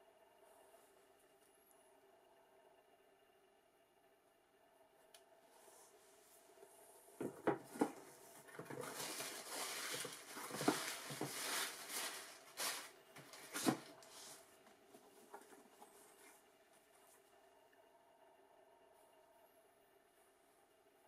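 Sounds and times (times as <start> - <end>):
tissue paper crinkling: 7.8 - 14.5.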